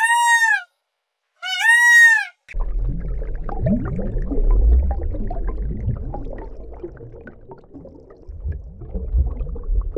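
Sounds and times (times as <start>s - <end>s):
underwater bubbling and gurgling: 2.5s - 9.9s
low rumble: 2.6s - 9.9s.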